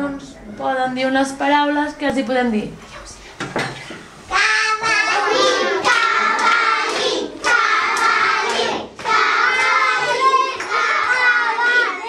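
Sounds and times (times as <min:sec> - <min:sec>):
children singing in unison: 0:04.3 - 0:12.0
children clapping in time: 0:04.8 - 0:12.0.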